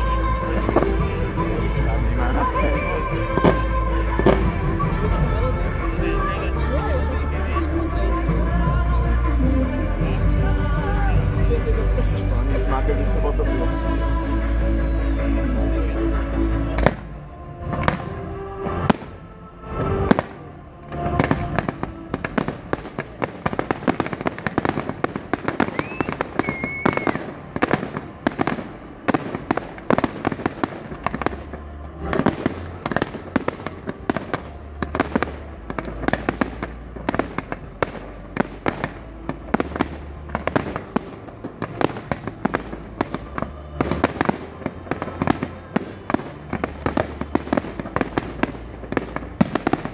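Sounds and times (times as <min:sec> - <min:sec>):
fireworks bangs: 0:00.0 - 0:49.9
fireworks bursts and crackles: 0:00.0 - 0:49.9
firework whistle: 0:17.8 - 0:48.7.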